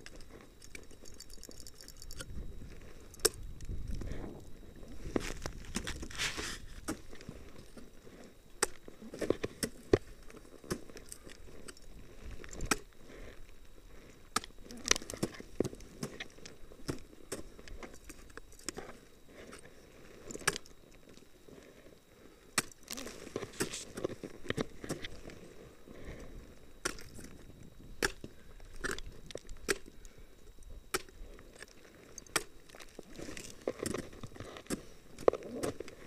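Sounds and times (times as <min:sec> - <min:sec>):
ice scraping and crunching: 0:05.0 - 0:08.3, 0:22.8 - 0:25.7, 0:31.5 - 0:36.0.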